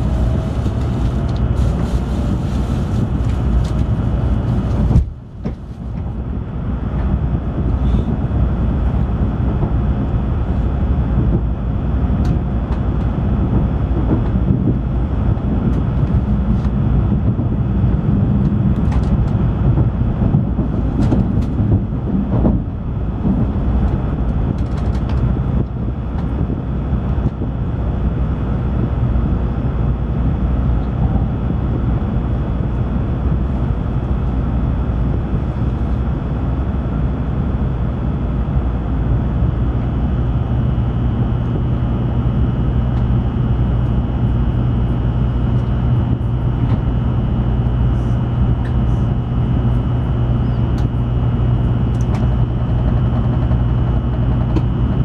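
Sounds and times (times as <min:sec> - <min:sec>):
train rumbling inside cabin: 0:00.0 - 0:55.0.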